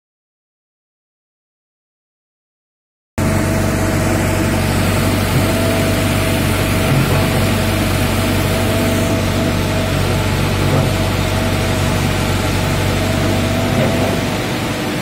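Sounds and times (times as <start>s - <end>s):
excavator diesel engine running: 3.2s - 15.0s.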